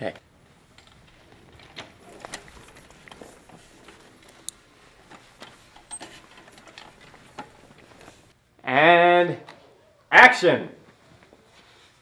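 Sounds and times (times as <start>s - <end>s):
person shifting in wheelchair: 0.3s - 8.4s.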